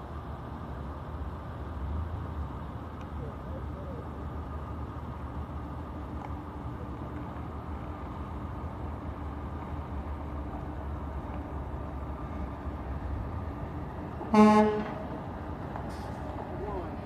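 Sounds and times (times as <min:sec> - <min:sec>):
truck horn blast: 0:14.3 - 0:15.0.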